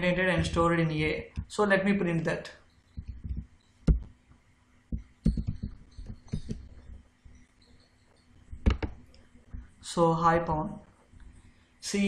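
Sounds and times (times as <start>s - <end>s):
keyboard and mouse clicks: 3.0s - 4.1s, 4.9s - 7.0s, 8.6s - 9.2s.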